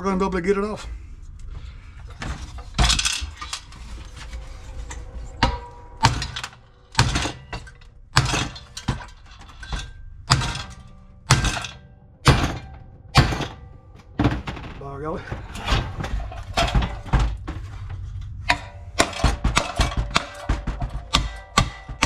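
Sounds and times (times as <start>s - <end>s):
hammer pounding on metal: 10.3s - 14.6s, 18.5s - 22.0s.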